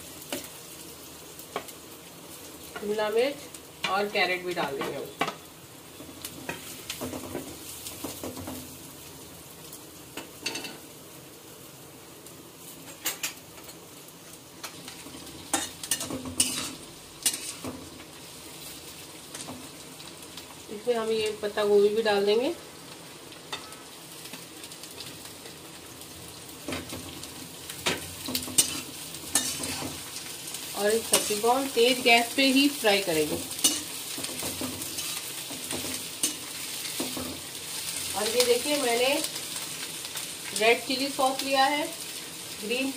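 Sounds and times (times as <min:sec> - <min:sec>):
vegetables sizzling in hot oil: 0:00.0 - 0:42.9
spatula scraping and knocking pan: 0:06.3 - 0:08.7, 0:14.6 - 0:17.9, 0:27.8 - 0:30.2, 0:33.2 - 0:37.6.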